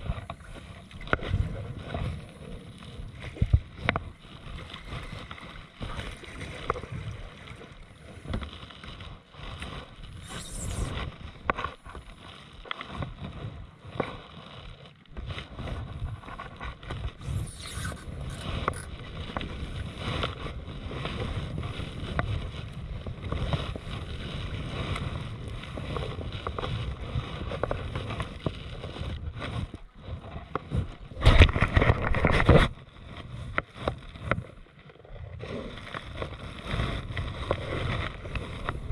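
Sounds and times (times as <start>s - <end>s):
rush of splashing or wind: 0.0s - 14.2s
kayak paddle strokes in water: 0.0s - 38.9s
water lapping at hull: 0.0s - 38.9s.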